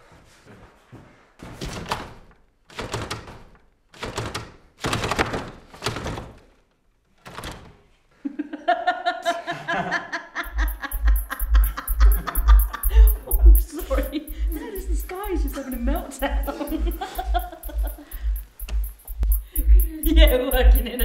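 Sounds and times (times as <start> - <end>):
music with pulsing bass beat: 10.4 - 21.0.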